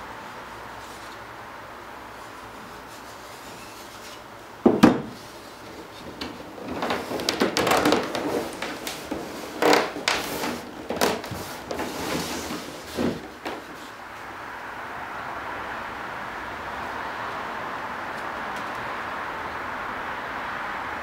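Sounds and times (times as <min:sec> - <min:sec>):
wooden strip squeaking and rubbing: 0:02.2 - 0:04.4, 0:05.0 - 0:13.9
loud knock: 0:04.6 - 0:05.2.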